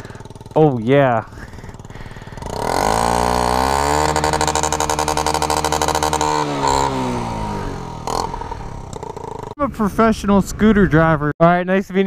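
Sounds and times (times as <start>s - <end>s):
scooter engine revving: 0.0s - 9.6s.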